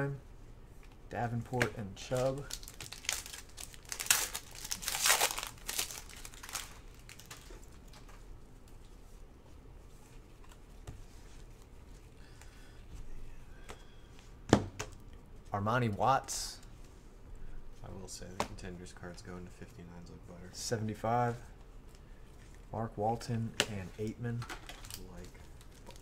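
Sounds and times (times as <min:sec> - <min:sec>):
cards rustling: 0:00.8 - 0:08.2, 0:23.6 - 0:26.0
foil pack crinkling: 0:02.0 - 0:08.0, 0:24.6 - 0:26.0.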